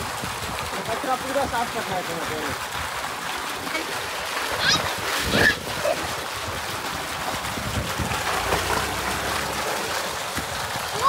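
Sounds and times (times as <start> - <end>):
water pouring from a pipe: 0.0 - 11.0
child splashing through water: 3.0 - 11.0.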